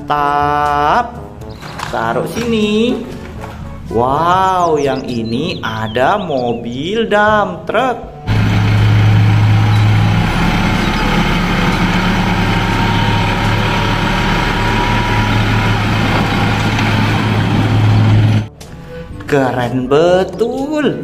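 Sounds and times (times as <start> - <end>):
truck engine running: 8.2 - 18.8
hydraulic hoist: 8.3 - 18.8
soil dumping: 8.3 - 18.8.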